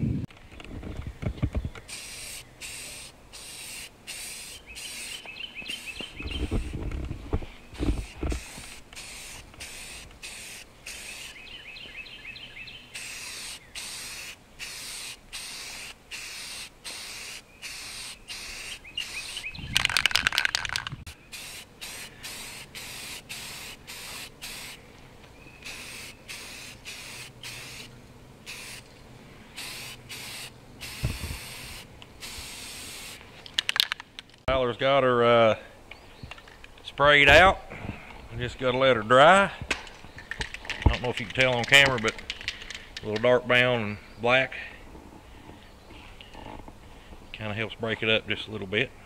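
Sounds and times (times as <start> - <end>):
spray paint can hissing: 1.8 - 7.0, 7.8 - 11.4, 12.9 - 24.8, 25.6 - 29.0, 29.6 - 34.0.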